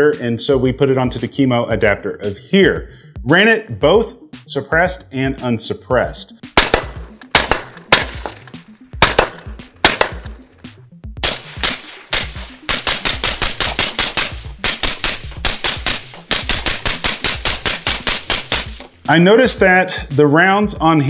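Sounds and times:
rifle shots: 0:06.6 - 0:10.4, 0:11.2 - 0:19.0.

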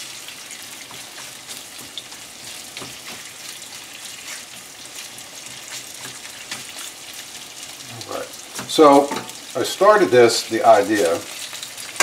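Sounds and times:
chicken sizzling in oil: 0:00.0 - 0:12.0
spatula stirring: 0:00.3 - 0:09.4.

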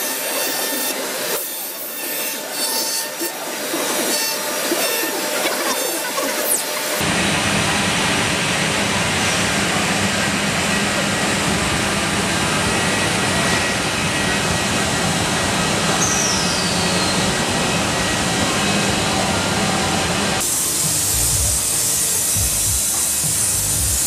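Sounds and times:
bright hiss: 0:20.4 - 0:24.0.

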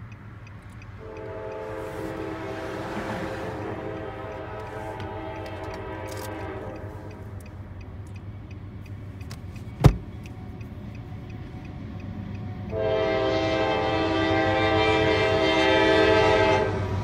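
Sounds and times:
low steady train rumble: 0:00.0 - 0:17.0
locomotive air horn: 0:01.0 - 0:07.4, 0:12.7 - 0:17.0.

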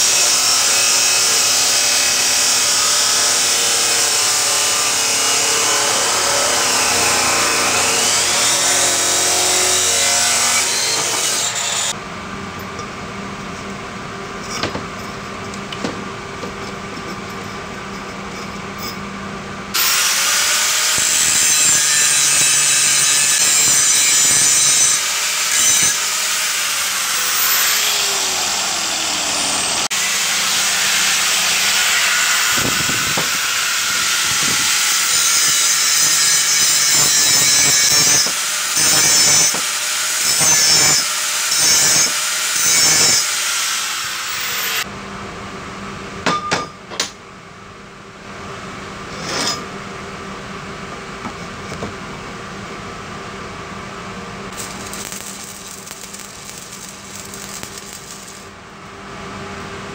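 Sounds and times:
power tool grinding steel: 0:00.0 - 0:12.0, 0:19.8 - 0:44.9, 0:54.5 - 0:58.5.

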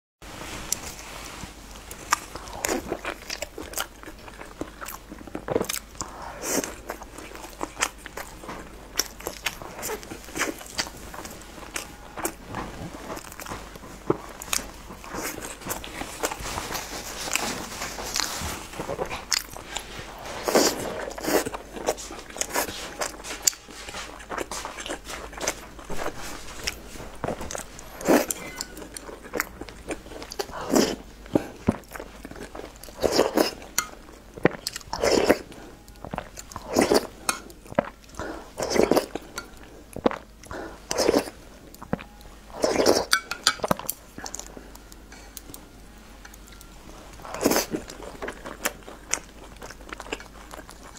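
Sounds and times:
wet chewing and slurping: 0:00.7 - 0:45.6, 0:46.3 - 0:50.9.

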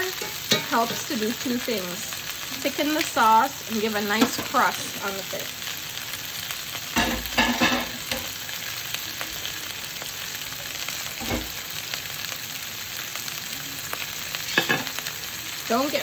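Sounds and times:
fish frying in hot oil: 0:00.0 - 0:16.0.

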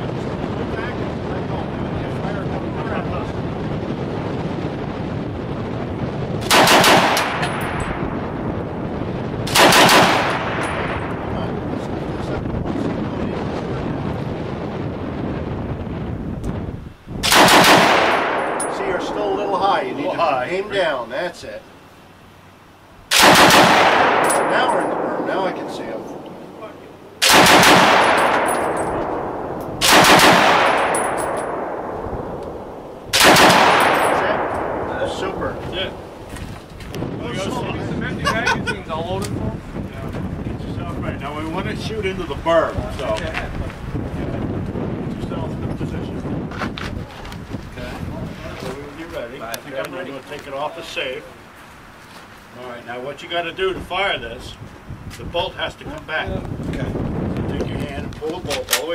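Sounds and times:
automatic rifle bursts with echo: 0:06.4 - 0:07.8, 0:09.5 - 0:11.0, 0:17.2 - 0:18.9, 0:23.1 - 0:26.3, 0:27.2 - 0:31.9, 0:33.1 - 0:36.1
automatic rifle bursts: 0:06.5 - 0:07.5, 0:27.2 - 0:28.6, 0:29.8 - 0:31.1, 0:33.2 - 0:34.2.

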